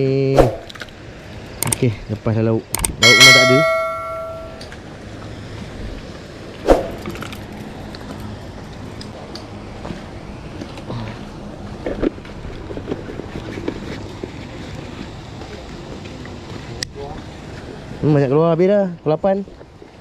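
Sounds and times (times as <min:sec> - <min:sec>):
low background hum: 0:00.0 - 0:20.0
sharp thump: 0:00.4 - 0:00.7
bell-like chime: 0:03.0 - 0:04.6.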